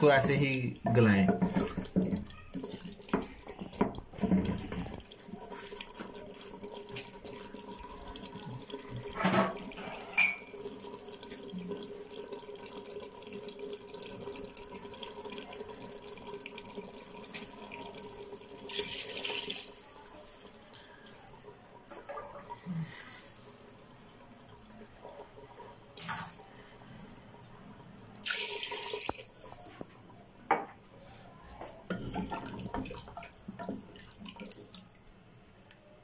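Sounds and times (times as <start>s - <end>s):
wooden spatula stirring: 0.0s - 7.2s
curry bubbling in a pot: 0.0s - 18.7s.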